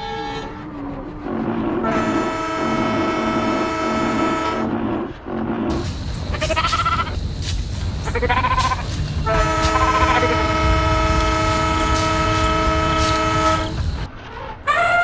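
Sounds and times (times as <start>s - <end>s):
train rumbling: 0.0s - 15.0s
locomotive horn chord: 1.8s - 4.9s, 8.1s - 14.1s
wavering animal calls: 6.0s - 7.2s, 7.9s - 15.0s.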